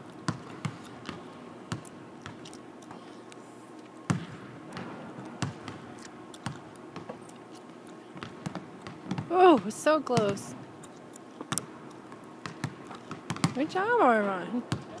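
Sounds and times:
basketballs bouncing on hardwood: 0:00.3 - 0:02.4, 0:04.1 - 0:07.2, 0:08.2 - 0:10.5, 0:12.4 - 0:14.0, 0:14.7 - 0:15.0.

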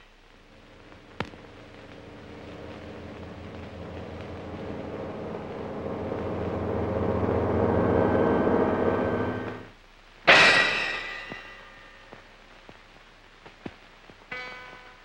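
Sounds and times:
low drone of held tones: 0:00.3 - 0:09.7.

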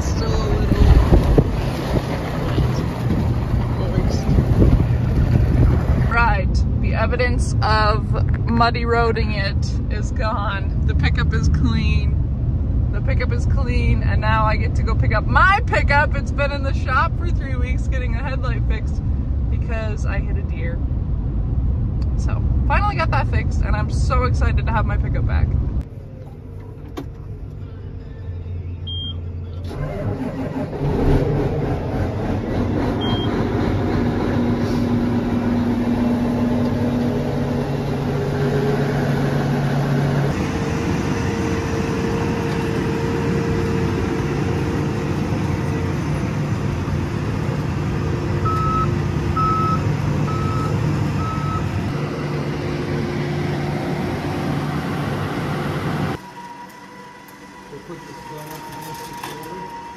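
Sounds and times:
diesel engines running: 0:00.0 - 0:59.9
backup alarm beeping: 0:28.8 - 0:29.6, 0:33.0 - 0:33.4, 0:48.4 - 0:51.8.

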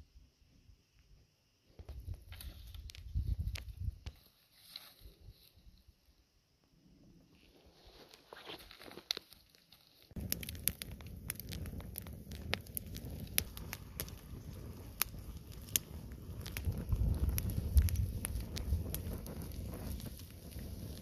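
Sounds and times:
wood fire crackling and popping: 0:01.8 - 0:04.2, 0:07.9 - 0:21.0.

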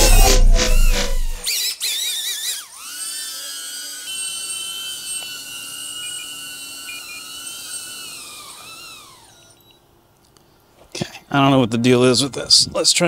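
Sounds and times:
drone propellers whining: 0:00.0 - 0:09.8.

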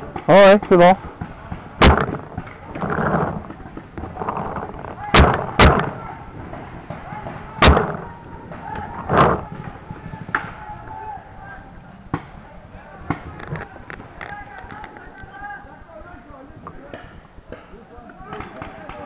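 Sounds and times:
paintball marker shots: 0:01.8 - 0:02.6, 0:05.1 - 0:06.0, 0:07.6 - 0:08.1.

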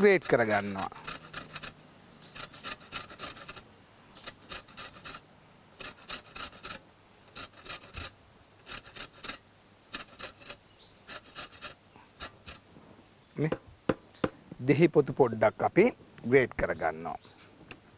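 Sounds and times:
rind grated on metal box grater: 0:00.0 - 0:03.6, 0:04.2 - 0:05.2, 0:05.8 - 0:12.6.

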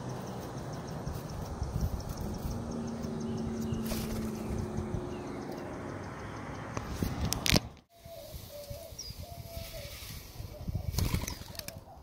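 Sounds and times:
bird wings flapping: 0:03.8 - 0:04.6, 0:10.9 - 0:11.8
dove cooing: 0:08.0 - 0:12.0.

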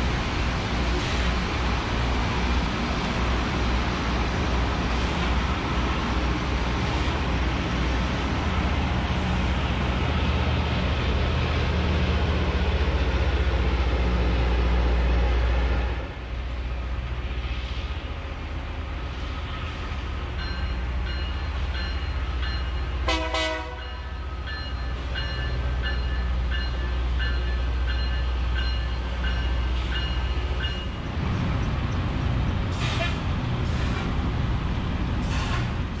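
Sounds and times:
rail grinder machinery rumble: 0:00.0 - 0:36.0
signal horn blast: 0:23.0 - 0:23.9.

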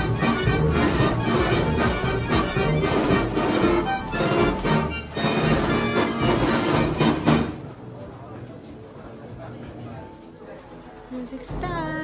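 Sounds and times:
mechanical pipe organ playing: 0:00.0 - 0:07.2.

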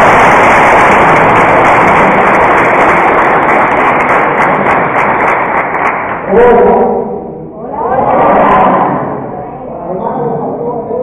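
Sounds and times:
crowd clapping and cheering: 0:00.0 - 0:06.7.

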